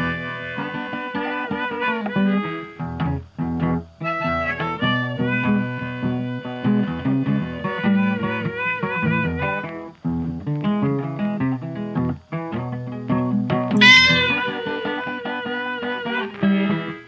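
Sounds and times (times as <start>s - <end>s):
plucked acoustic guitar music: 0.0s - 17.0s
high sound falling in pitch: 13.8s - 14.6s.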